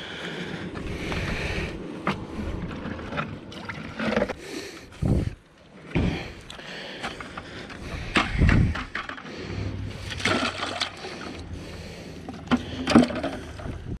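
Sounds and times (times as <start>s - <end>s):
water splashing in plastic bucket: 10.0s - 11.4s.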